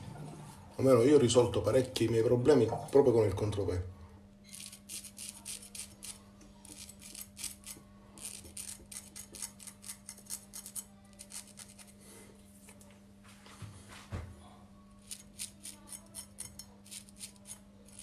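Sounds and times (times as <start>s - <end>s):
razor scraping stubble: 4.4s - 12.0s, 15.0s - 18.0s.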